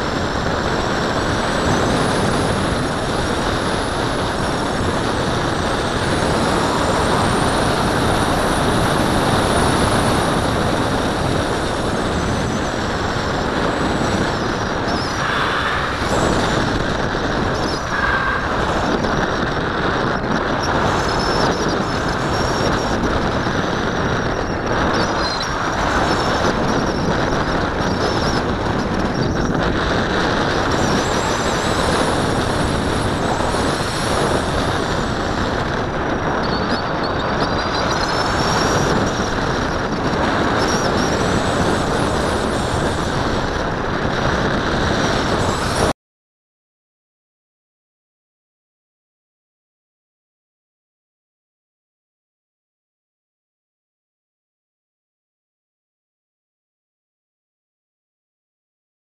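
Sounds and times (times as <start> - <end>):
wind roar on camera: 0.0 - 46.0
faint high whistles: 17.5 - 19.1.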